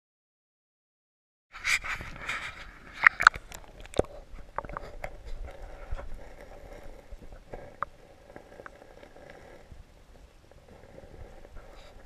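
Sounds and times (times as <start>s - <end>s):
faint hiss of moving water: 1.6s - 12.0s
sharp underwater clicks and knocks: 1.8s - 6.1s.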